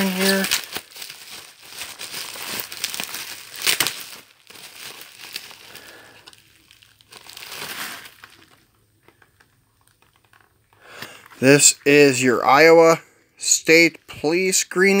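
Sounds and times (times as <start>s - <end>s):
bubble wrap crinkling: 0.0s - 11.7s.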